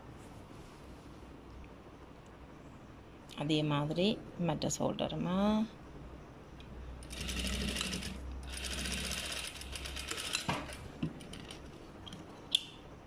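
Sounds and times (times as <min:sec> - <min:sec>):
electric sewing machine stitching: 0:07.0 - 0:11.6.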